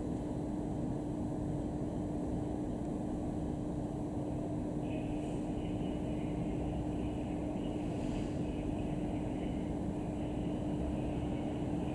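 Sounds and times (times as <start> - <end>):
constant hum: 0.0 - 11.9
low outdoor rumble: 0.0 - 11.9.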